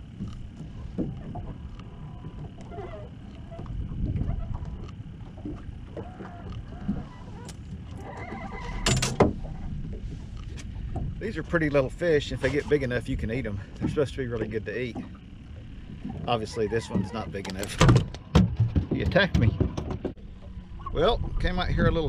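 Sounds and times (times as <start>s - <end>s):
wind on microphone: 3.6s - 5.6s, 19.4s - 22.0s
fishing reel squeaks: 6.0s - 9.0s.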